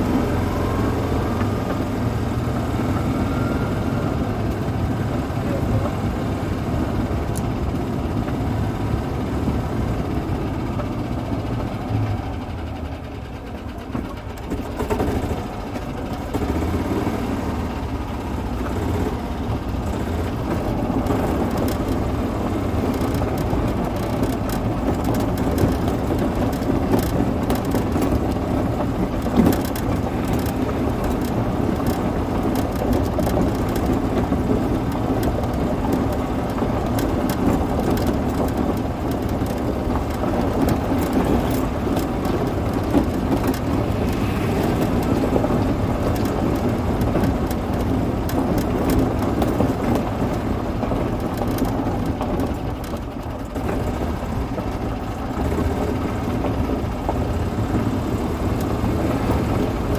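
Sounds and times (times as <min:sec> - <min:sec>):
golf cart running: 0:00.0 - 0:59.9.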